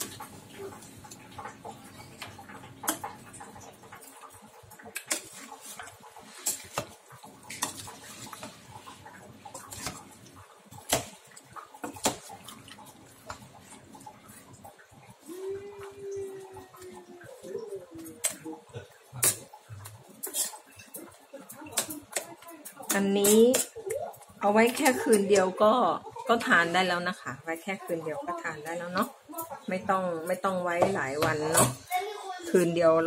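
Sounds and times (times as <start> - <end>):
metal ladle scraping pot: 4.9 - 10.0, 20.2 - 21.0.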